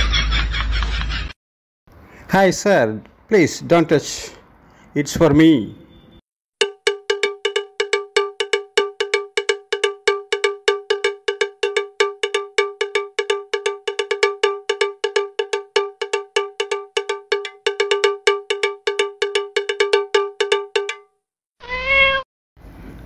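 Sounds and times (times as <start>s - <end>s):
rapid metallic bell-like hits: 6.6s - 21.1s.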